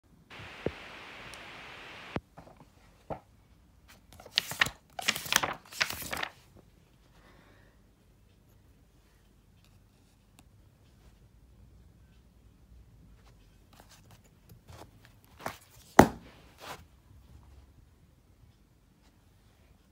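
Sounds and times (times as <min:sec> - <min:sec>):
steady hiss: 0:00.1 - 0:02.2
book pages flipping: 0:03.9 - 0:06.5, 0:13.8 - 0:16.9.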